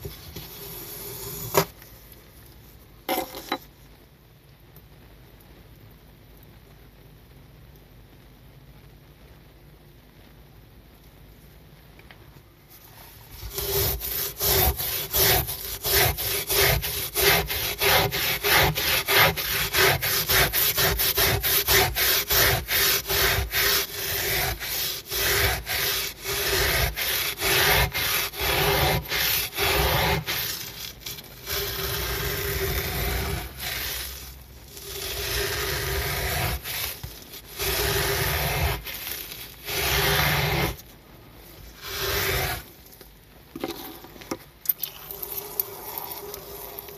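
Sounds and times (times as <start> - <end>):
brush scrubbing wet carpet: 13.5 - 40.8.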